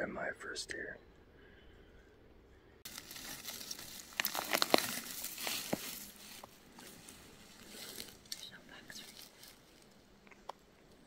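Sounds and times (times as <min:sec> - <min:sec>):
rustling and crinkling: 0:02.8 - 0:11.0.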